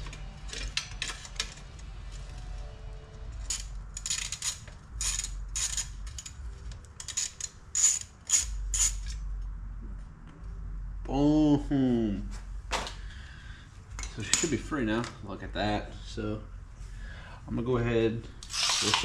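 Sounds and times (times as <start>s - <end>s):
socket ratchet clicking: 7.0s - 9.2s, 18.4s - 19.0s.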